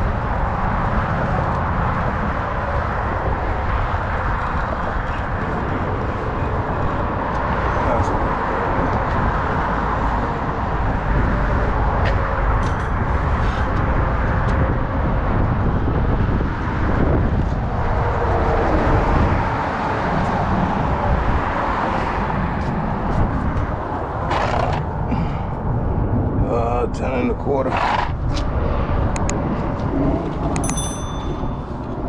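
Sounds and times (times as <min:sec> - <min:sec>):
road traffic rumble: 0:00.0 - 0:32.0.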